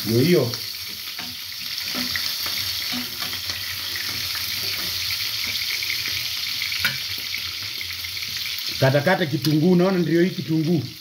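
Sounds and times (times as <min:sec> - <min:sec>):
food sizzling in a pan: 0:00.0 - 0:11.0
metal spatula scraping pan: 0:01.0 - 0:07.3.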